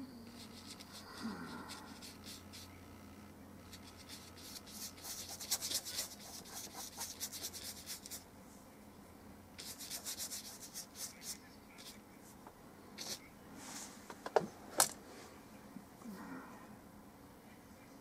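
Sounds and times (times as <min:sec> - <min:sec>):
paintbrush scrubbing on paper: 0:00.4 - 0:01.1, 0:01.7 - 0:02.7, 0:03.8 - 0:08.2, 0:09.6 - 0:12.0, 0:13.0 - 0:14.0.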